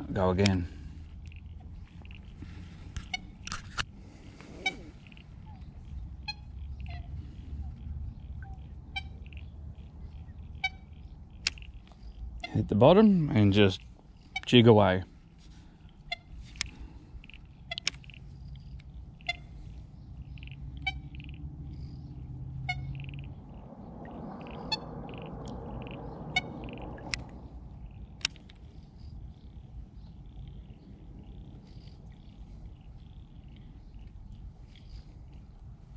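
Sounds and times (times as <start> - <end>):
low rumble: 18.2 - 35.9
sharp reel clicks: 28.1 - 29.0.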